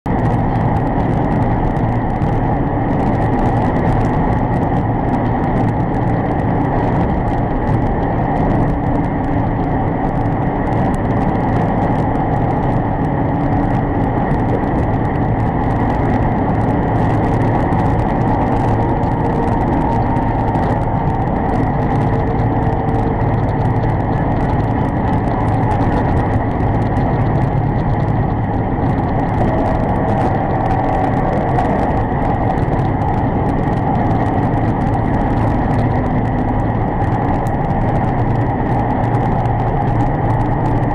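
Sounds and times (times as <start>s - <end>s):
truck engine and road noise: 0.0s - 40.9s.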